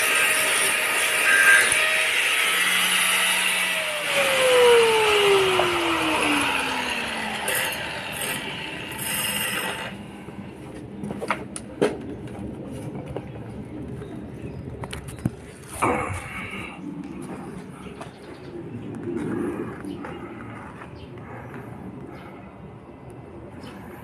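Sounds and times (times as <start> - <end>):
angle grinder motor whining down: 0.0 - 10.0.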